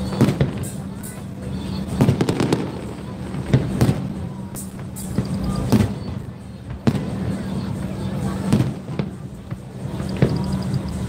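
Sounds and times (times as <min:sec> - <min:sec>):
firework shells bursting: 0:00.0 - 0:07.4.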